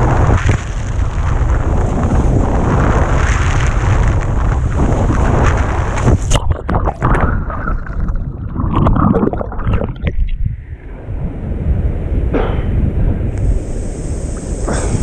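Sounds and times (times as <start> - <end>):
bubbles crackling and splashes: 0.0 - 10.9
muffled underwater churning: 0.0 - 12.5
surf rushing: 0.0 - 15.0
wind buffeting microphone: 0.0 - 15.0.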